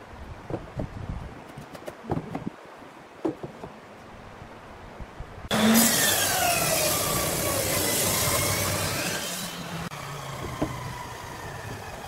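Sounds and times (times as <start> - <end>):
wooden blocks knocking on bench: 3.2 - 3.8
table saw running: 5.5 - 12.0.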